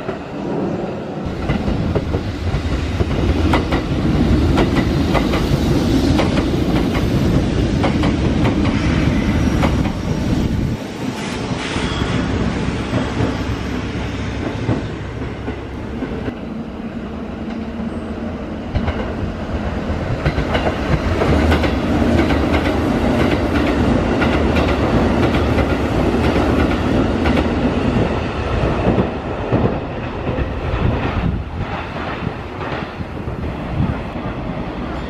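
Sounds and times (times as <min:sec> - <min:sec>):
electric train passing: 0:00.0 - 0:35.0
train wheels clacking over rail joints: 0:01.4 - 0:10.0.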